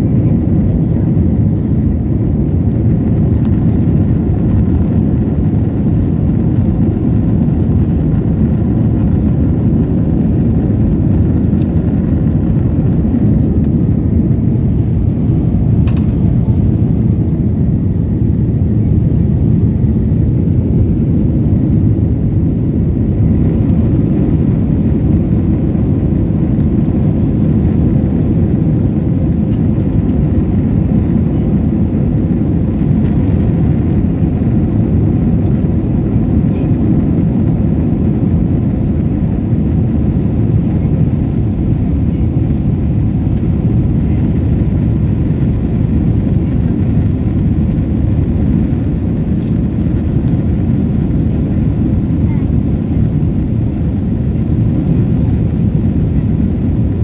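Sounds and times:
jet engines in aircraft cabin: 0:00.0 - 0:57.0.

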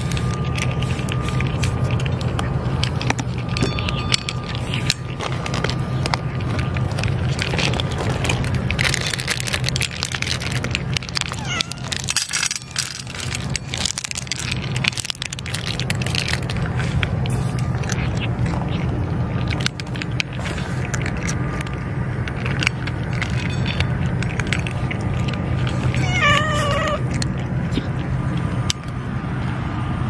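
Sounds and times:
cats chewing food: 0:00.0 - 0:30.0
low steady rumble: 0:00.0 - 0:30.0
cat meowing: 0:11.2 - 0:12.2, 0:25.8 - 0:27.2.

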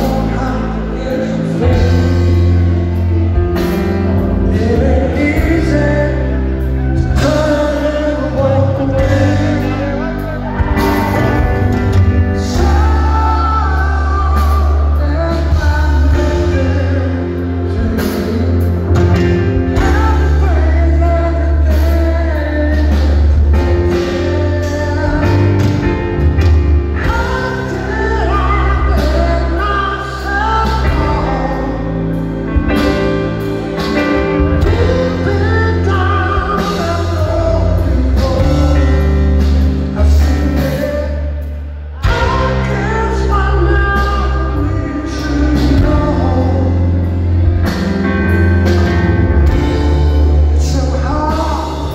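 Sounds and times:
keyboard chords: 0:00.0 - 0:51.9
live rock band playing: 0:00.0 - 0:51.9
man singing lead: 0:00.0 - 0:51.9.

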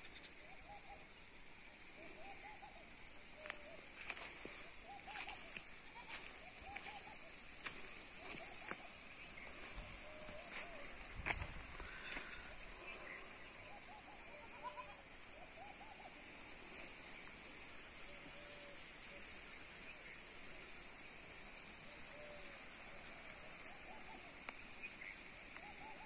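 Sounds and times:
steady background hiss: 0:00.0 - 0:26.0
faint short animal calls: 0:04.8 - 0:07.3, 0:13.7 - 0:16.1.

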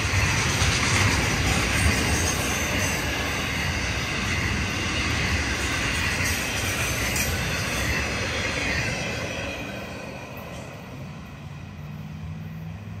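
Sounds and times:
freight train wheels clattering on track: 0:00.0 - 0:13.0.

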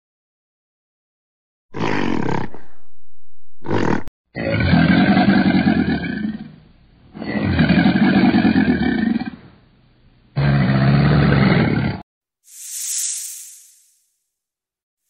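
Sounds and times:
crocodile low rough growl: 0:01.8 - 0:03.0, 0:03.6 - 0:06.6, 0:10.4 - 0:12.0.

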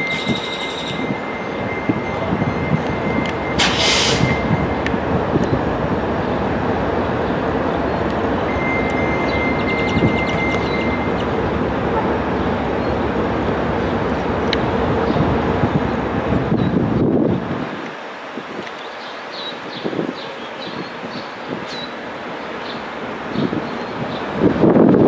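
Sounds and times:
high squeal: 0:00.0 - 0:04.8
train rumbling past: 0:00.0 - 0:18.4, 0:20.3 - 0:25.0
short hiss: 0:03.6 - 0:04.4.

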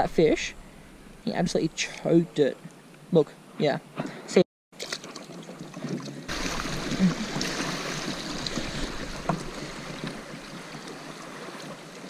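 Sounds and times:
water lapping along kayak hull: 0:04.8 - 0:12.0.

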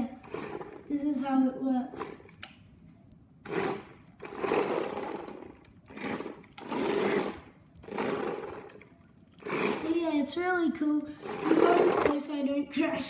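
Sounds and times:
toy car electric motors whirring: 0:00.0 - 0:01.1, 0:03.4 - 0:10.3, 0:11.2 - 0:12.5.

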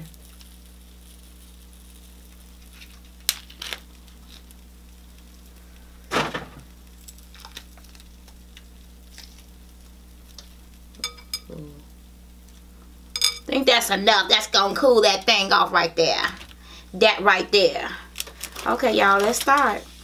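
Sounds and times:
steady low hum: 0:00.0 - 0:20.0
shell cracking and crunching: 0:01.9 - 0:05.3, 0:06.6 - 0:11.0, 0:16.3 - 0:16.6, 0:18.1 - 0:19.6.

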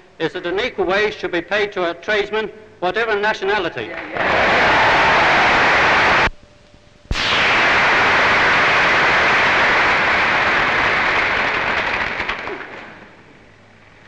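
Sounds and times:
audience applauding: 0:03.9 - 0:06.3, 0:08.7 - 0:13.0.

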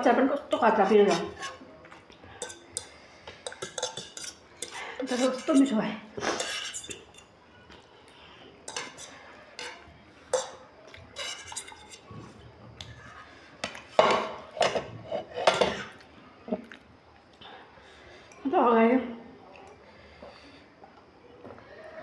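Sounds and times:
cutlery clinking on plates: 0:02.4 - 0:05.7, 0:06.3 - 0:07.3, 0:08.6 - 0:12.1, 0:13.6 - 0:16.0.

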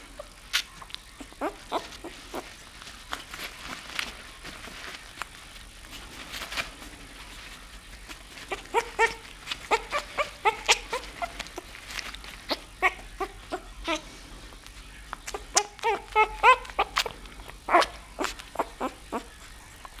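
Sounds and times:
puppy squeaking cries: 0:00.2 - 0:02.5, 0:08.5 - 0:11.7, 0:12.4 - 0:14.1, 0:14.9 - 0:19.9.

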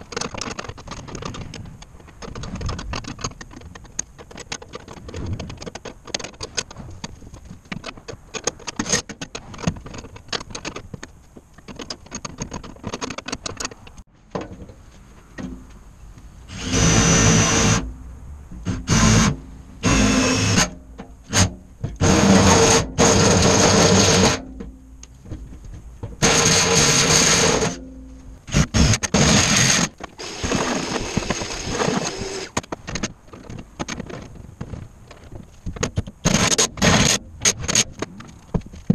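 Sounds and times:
cordless drill driving bolts: 0:16.5 - 0:17.8, 0:18.6 - 0:24.4, 0:26.2 - 0:27.8, 0:28.5 - 0:32.6.

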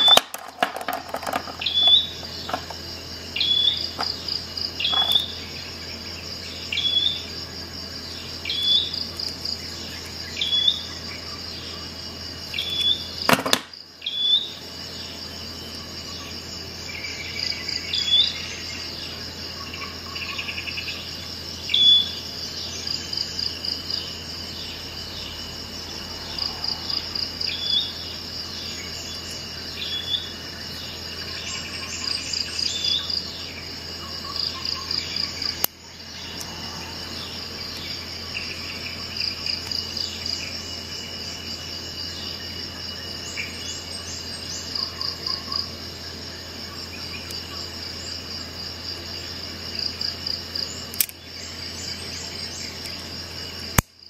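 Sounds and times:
bird calls: 0:00.0 - 0:13.4, 0:14.0 - 0:40.6
crickets chirping: 0:00.0 - 0:54.0
sharp click: 0:50.9 - 0:51.2.

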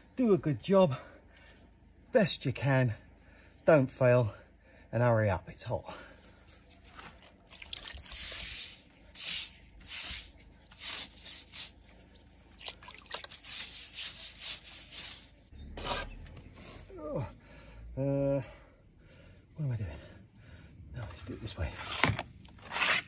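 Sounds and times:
paintbrush strokes on rough render: 0:08.0 - 0:12.0, 0:13.4 - 0:16.8.

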